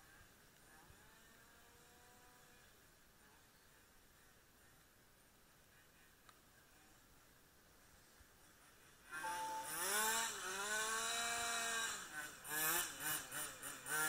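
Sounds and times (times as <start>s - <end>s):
small model car engine revving: 0.7s - 2.7s, 9.1s - 14.0s.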